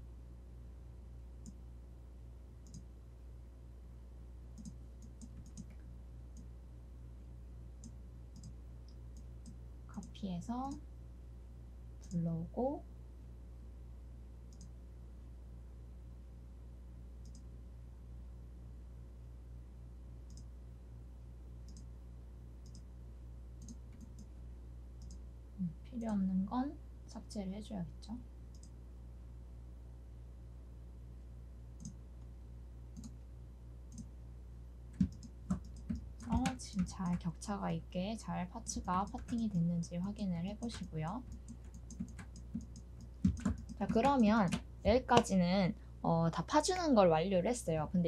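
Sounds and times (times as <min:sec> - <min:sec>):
low electrical hum: 0:00.0 - 0:48.0.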